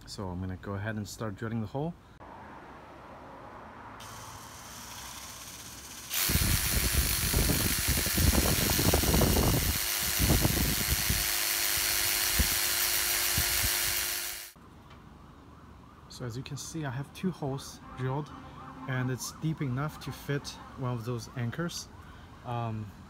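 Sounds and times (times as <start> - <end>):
hammer drill boring into stone: 4.0 - 14.6.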